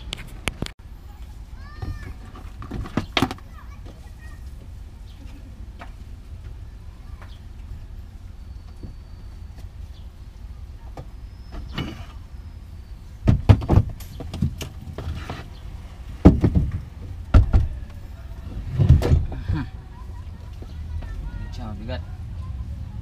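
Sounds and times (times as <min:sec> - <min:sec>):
heavy box thumps and knocks: 0:13.2 - 0:15.1, 0:16.2 - 0:17.7.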